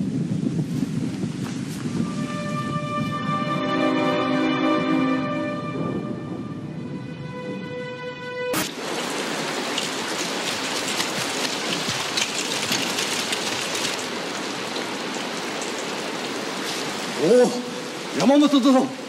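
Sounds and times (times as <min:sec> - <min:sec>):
rain hissing: 0:00.0 - 0:06.1, 0:08.5 - 0:19.0
raindrop splashes: 0:08.6 - 0:19.0.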